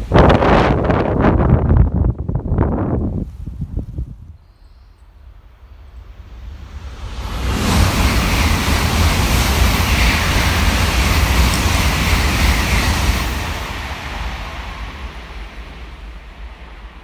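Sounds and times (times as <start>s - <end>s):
high-speed train passing: 5.1s - 17.0s
rush of air and rumbling wheels: 5.6s - 17.0s.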